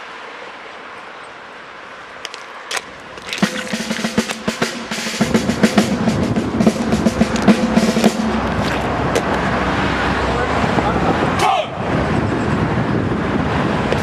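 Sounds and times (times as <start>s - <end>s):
snare drum roll: 3.4s - 8.7s.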